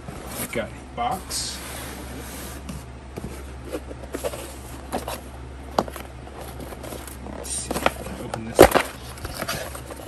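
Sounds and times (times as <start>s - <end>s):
steady low hum: 0.0s - 10.0s
cardboard box handled: 2.1s - 10.0s.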